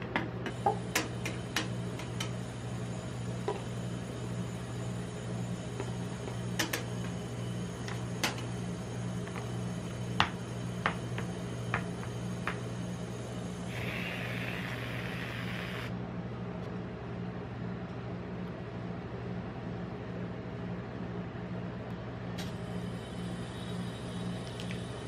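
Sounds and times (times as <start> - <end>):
steady low hum: 0.0 - 25.0
whipped cream can hissing: 13.7 - 15.9.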